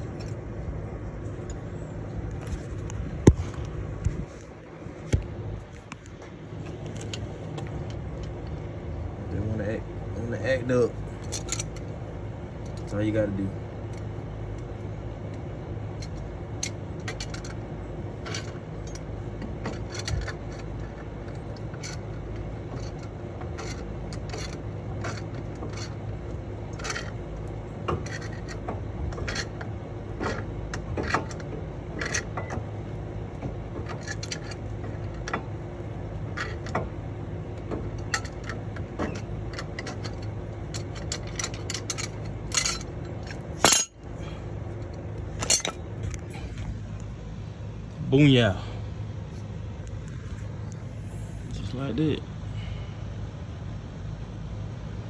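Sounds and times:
steady low hum: 0.0s - 55.0s
wrench clicking and scraping metal: 11.2s - 11.9s, 16.0s - 17.6s, 18.2s - 32.7s, 33.3s - 36.9s, 37.5s - 44.1s, 44.8s - 46.2s
metal clatter: 11.2s - 12.0s, 15.9s - 44.1s, 44.7s - 46.3s.

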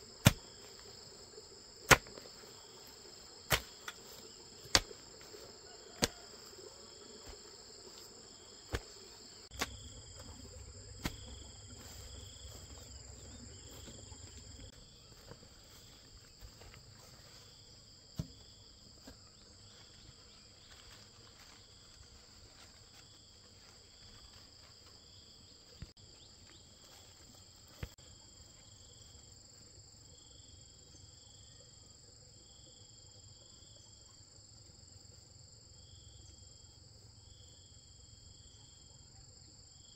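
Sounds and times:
pulsing insect call: 0.0s - 17.5s
insects chirring: 0.0s - 39.0s.

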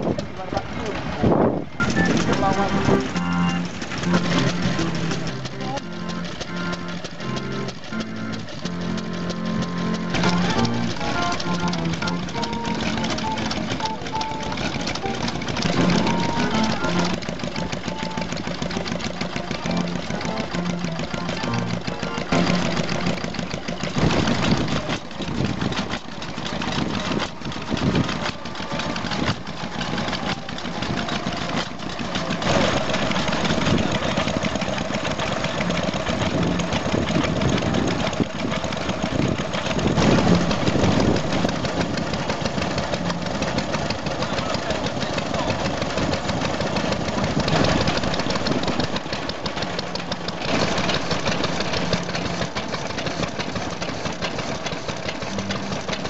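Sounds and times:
stationary engines running: 0.0s - 56.0s
steady whine: 0.6s - 25.7s.

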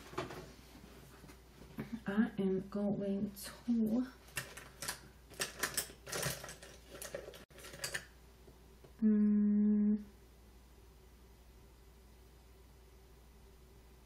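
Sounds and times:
woman humming: 9.0s - 10.2s.

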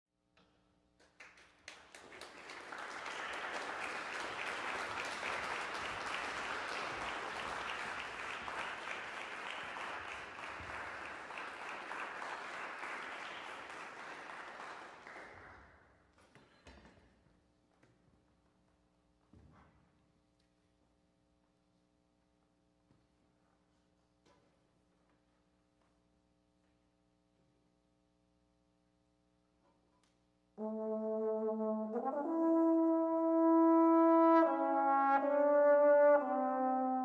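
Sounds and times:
audience applauding: 1.2s - 15.6s.

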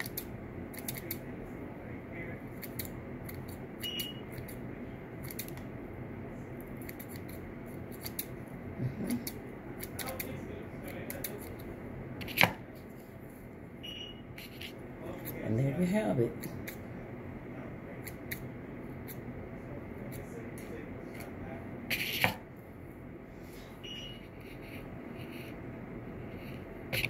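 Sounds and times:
scissors snipping: 0.0s - 1.2s.

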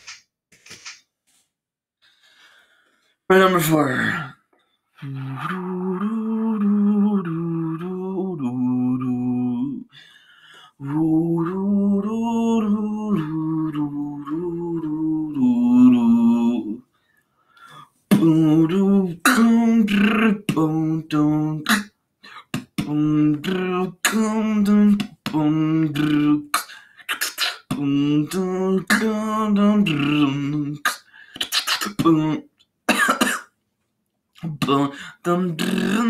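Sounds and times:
man beatboxing: 18.1s - 33.3s, 34.4s - 36.0s.

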